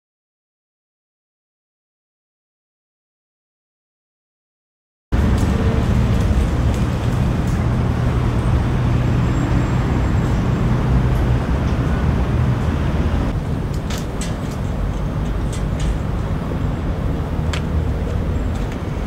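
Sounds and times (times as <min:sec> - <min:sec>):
motor traffic rumble: 0:05.1 - 0:19.0
low engine hum: 0:05.2 - 0:19.0.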